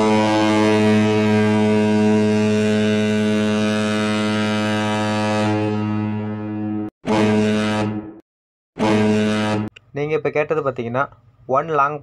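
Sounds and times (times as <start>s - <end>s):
ship's air whistle blast: 0.0s - 8.0s, 8.8s - 9.7s.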